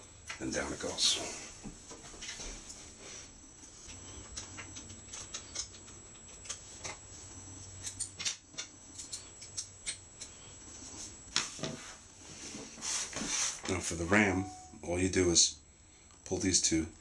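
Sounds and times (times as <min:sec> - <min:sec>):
faint low hum: 0:13.6 - 0:17.0.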